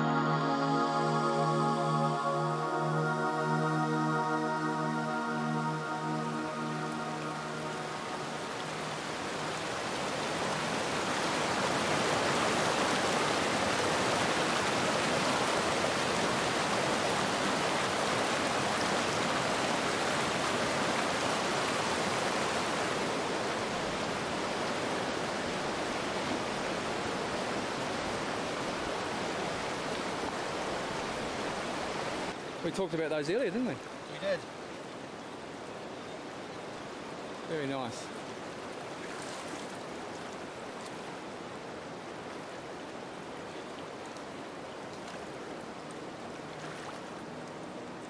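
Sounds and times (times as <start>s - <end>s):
water rushing over rocks: 8.5s - 32.4s.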